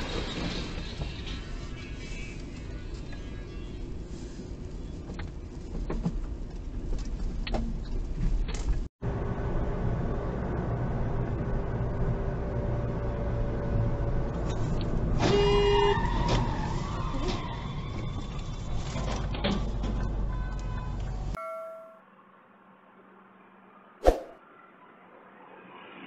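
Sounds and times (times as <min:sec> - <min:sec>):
car road and engine noise: 0:00.0 - 0:26.0
car horn blast: 0:15.3 - 0:15.9.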